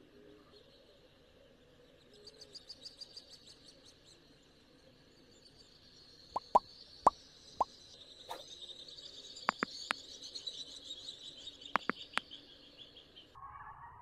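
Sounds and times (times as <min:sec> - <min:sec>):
short sharp plops: 0:06.4 - 0:06.6
thin clicks: 0:11.8 - 0:12.1.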